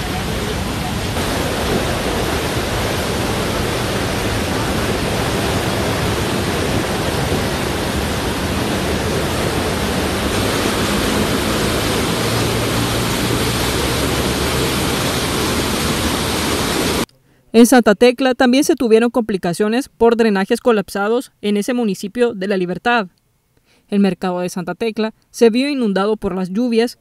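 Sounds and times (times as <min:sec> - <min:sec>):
floodwater rushing: 0:00.0 - 0:17.1.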